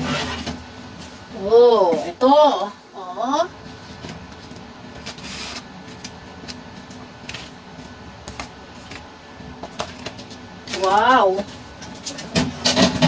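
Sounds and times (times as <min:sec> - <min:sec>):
steady background hum: 0:00.0 - 0:13.0
foil tins clicking on metal tray: 0:09.6 - 0:13.0.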